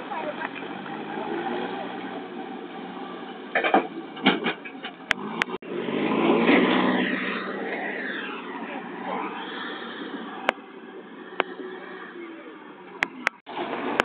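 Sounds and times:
knocks and rustling: 3.5 - 5.6.

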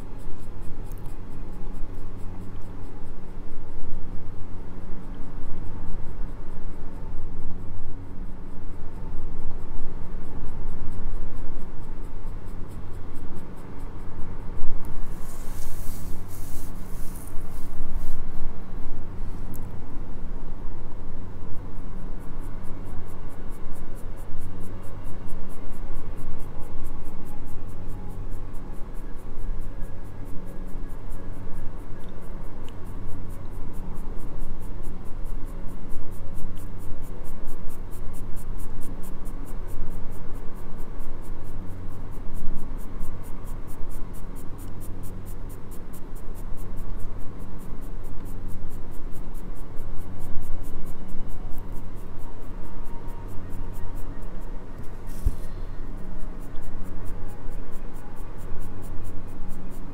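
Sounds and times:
soft background music: 50.4 - 59.9.

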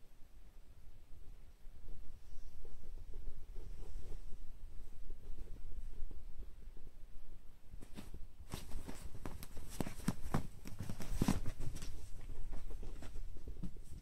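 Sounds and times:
soft thumps and rustles on bedding: 7.7 - 14.0.

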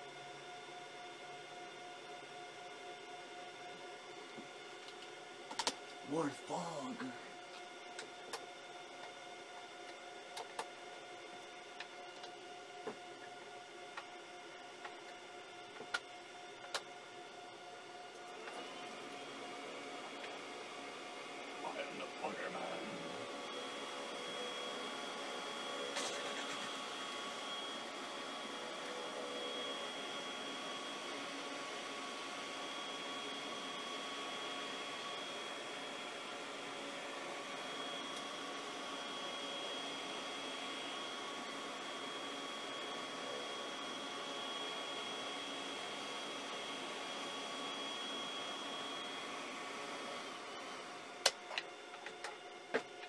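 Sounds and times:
fan-like machine hiss: 17.5 - 51.6.

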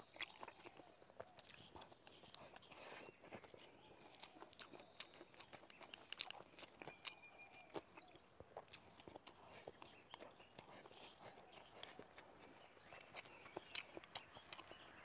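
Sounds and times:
chewing with mouth clicks: 0.0 - 15.0.

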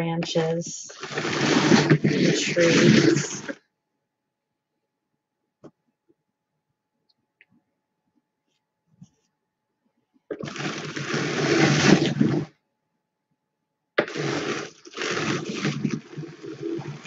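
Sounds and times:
drum carder brushing wool: 1.0 - 3.5.

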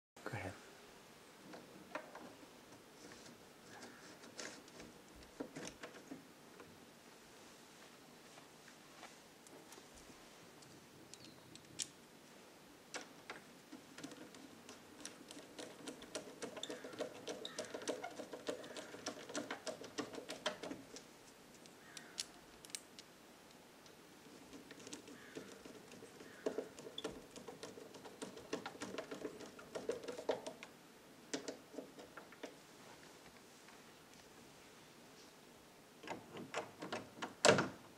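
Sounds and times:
door latch clicking and rattling: 4.4 - 6.2, 12.9 - 20.9, 24.5 - 30.7, 36.0 - 37.8.

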